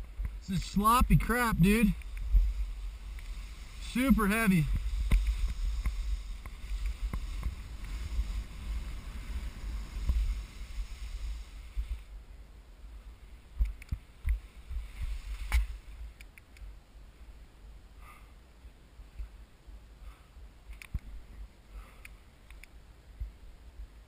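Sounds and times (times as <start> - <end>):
skis swishing through wet slush: 0.5 - 12.1.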